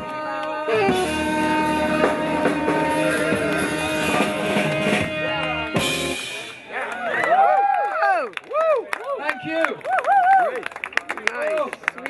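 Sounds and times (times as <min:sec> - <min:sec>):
live band playing instrumental: 0:00.0 - 0:07.0.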